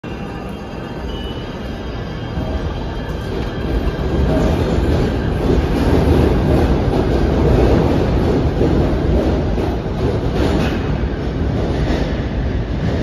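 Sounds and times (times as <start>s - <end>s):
train running on rails: 0.0s - 13.0s.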